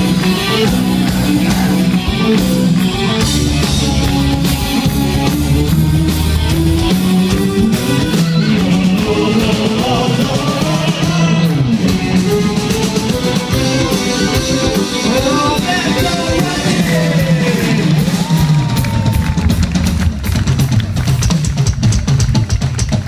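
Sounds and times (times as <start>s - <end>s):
man singing: 0.0s - 2.4s, 8.2s - 12.8s, 14.3s - 18.2s
live rock band playing: 0.0s - 23.0s.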